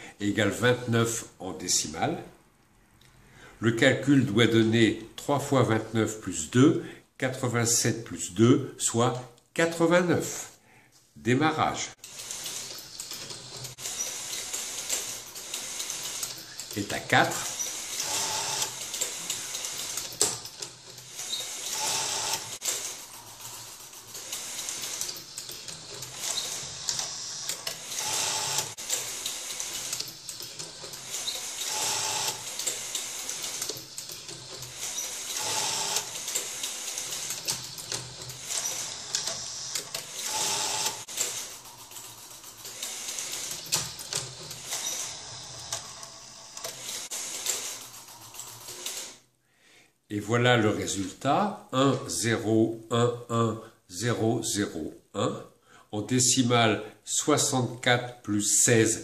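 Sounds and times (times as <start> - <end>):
machine whirring and clicking: 12.0 - 49.2.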